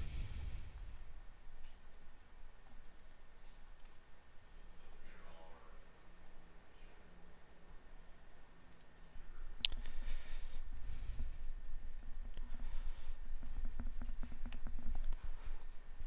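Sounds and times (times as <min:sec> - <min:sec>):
computer keyboard typing: 0:01.4 - 0:04.0, 0:04.8 - 0:06.5, 0:08.7 - 0:08.9, 0:10.6 - 0:12.1, 0:13.3 - 0:15.1.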